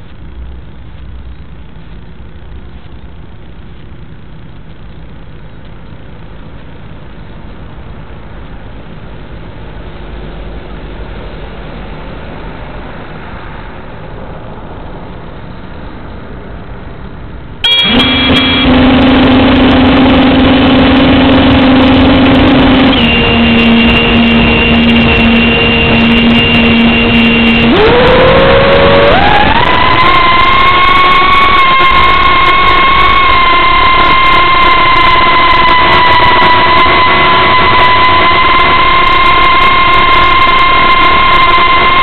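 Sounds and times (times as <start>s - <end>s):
drone motors whining: 17.6s - 42.0s.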